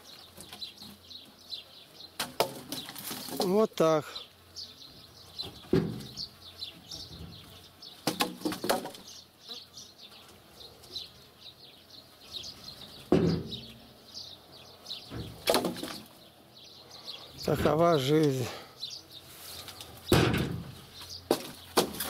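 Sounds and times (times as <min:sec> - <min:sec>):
small birds chirping: 0:00.0 - 0:22.0
logs knocking onto log pile: 0:02.2 - 0:03.6, 0:05.4 - 0:06.2, 0:08.0 - 0:09.1, 0:13.1 - 0:13.7, 0:15.1 - 0:16.2, 0:20.1 - 0:22.0.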